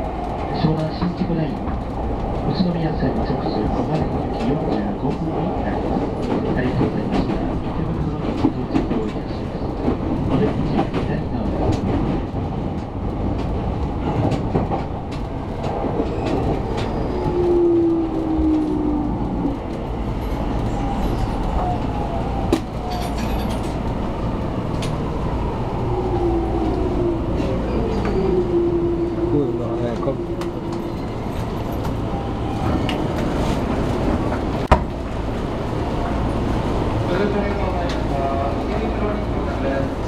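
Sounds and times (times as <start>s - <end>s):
train running rumble: 0.0s - 40.0s.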